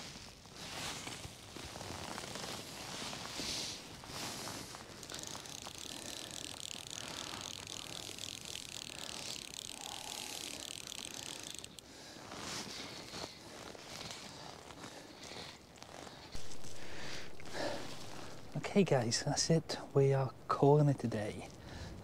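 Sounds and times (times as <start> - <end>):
fishing reel ratchet clicking: 4.9 - 11.8.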